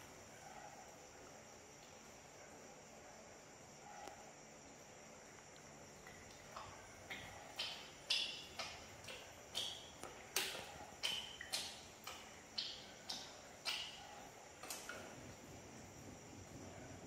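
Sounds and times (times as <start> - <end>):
regular sharp ticks: 5.4 - 14.9.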